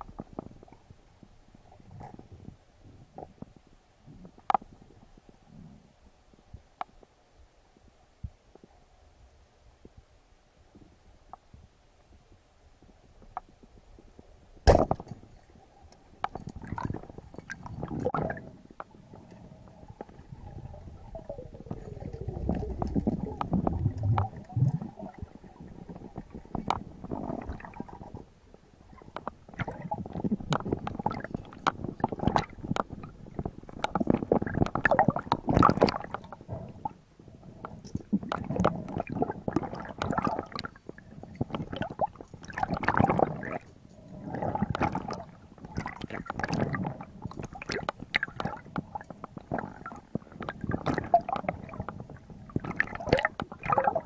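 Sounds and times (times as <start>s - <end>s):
clicks and knocks underwater: 0.0s - 5.7s, 12.8s - 54.0s
underwater gurgling and bubbling: 15.2s - 54.0s.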